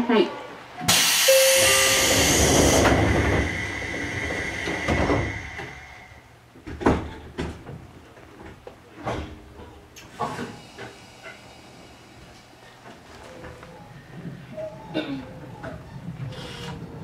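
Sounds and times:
compressed air hiss: 0:00.9 - 0:06.2.

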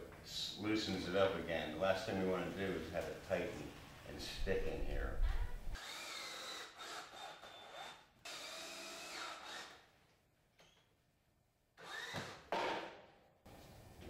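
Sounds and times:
cordless drill driving screw into wood: 0:05.8 - 0:09.8, 0:11.8 - 0:12.9.

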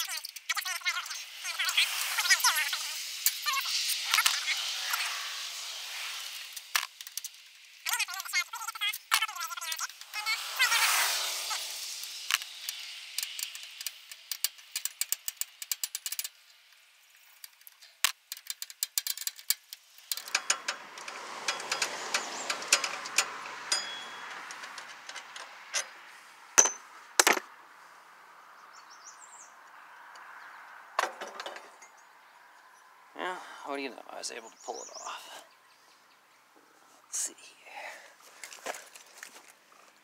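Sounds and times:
socket ratchet clicking: 0:12.0 - 0:16.4, 0:17.4 - 0:25.9
light metallic clinks: 0:20.1 - 0:25.9
sharp metal knocks: 0:26.6 - 0:27.5.

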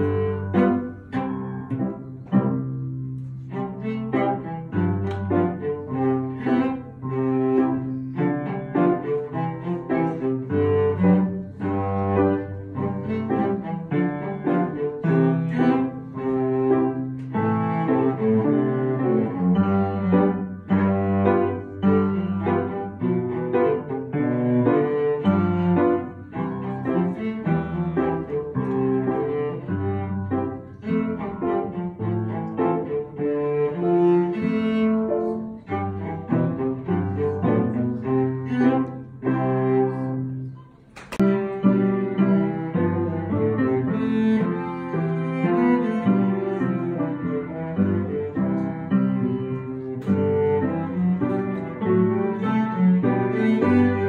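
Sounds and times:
bowed cello: 0:00.0 - 0:54.0
sharp click: 0:40.8 - 0:41.2.

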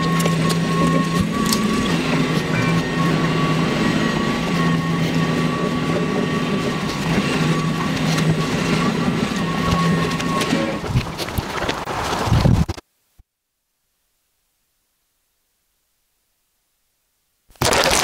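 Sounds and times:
laser cutter humming: 0:00.0 - 0:10.9
motor drone: 0:00.0 - 0:11.3.

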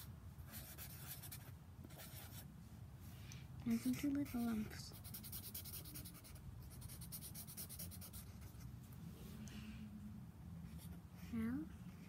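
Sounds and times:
marker scratching on paper: 0:00.0 - 0:02.4, 0:03.7 - 0:08.7.

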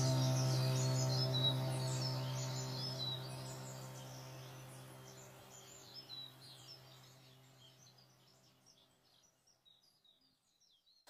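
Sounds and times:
low held musical tone: 0:00.0 - 0:07.9
birds chirping: 0:00.0 - 0:11.0.

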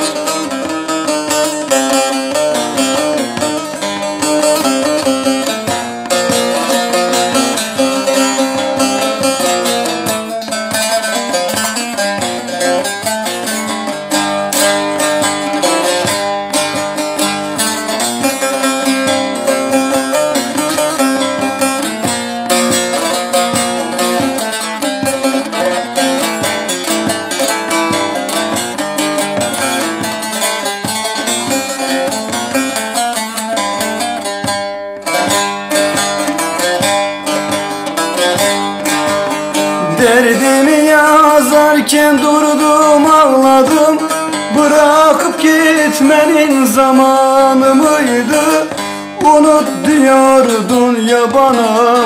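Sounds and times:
folk instrumental music: 0:00.0 - 0:52.0
plucked lute melody: 0:00.0 - 0:52.0.

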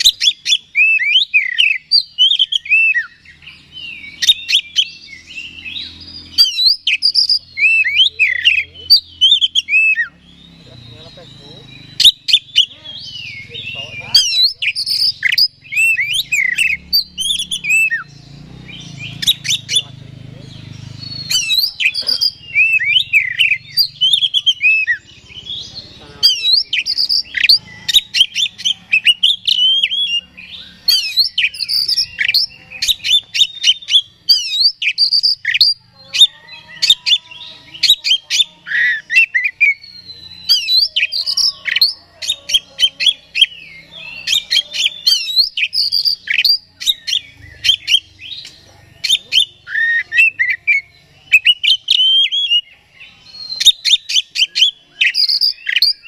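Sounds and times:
songbird singing whistles and clicks: 0:04.0 - 0:10.4, 0:26.2 - 0:30.2, 0:30.8 - 0:37.2, 0:44.2 - 0:52.8, 0:53.4 - 0:56.0.

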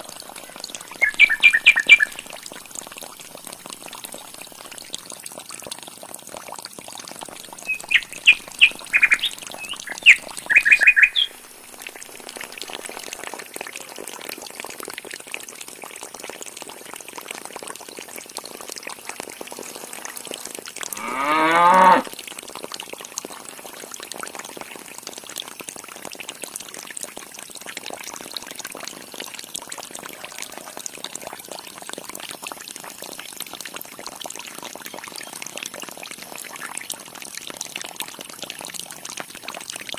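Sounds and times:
water pouring into tank: 0:00.0 - 0:39.9
birds chirping: 0:00.8 - 0:02.3, 0:07.6 - 0:11.4
animal call rising in pitch: 0:20.9 - 0:22.1.

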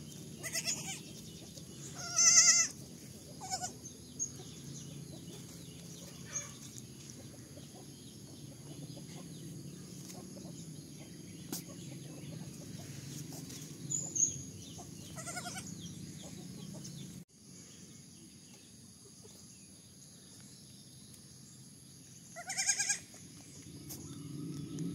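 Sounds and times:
goat kid bleating: 0:00.4 - 0:01.1, 0:01.9 - 0:02.8, 0:03.4 - 0:03.8, 0:15.2 - 0:15.7, 0:22.4 - 0:23.1.

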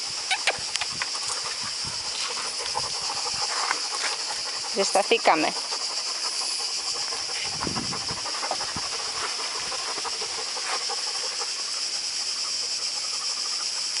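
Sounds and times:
cicadas buzzing: 0:00.0 - 0:14.0.

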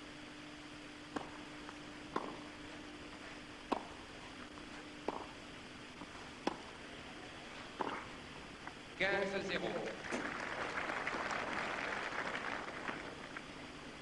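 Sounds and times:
faint steady hum: 0:00.0 - 0:14.0
tennis ball hit by racquets: 0:01.1 - 0:02.8, 0:03.4 - 0:07.0, 0:07.6 - 0:08.3.

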